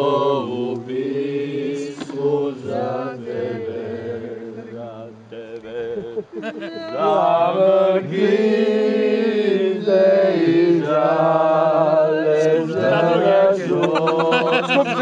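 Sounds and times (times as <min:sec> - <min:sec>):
group singing in harmony: 0:00.0 - 0:15.0.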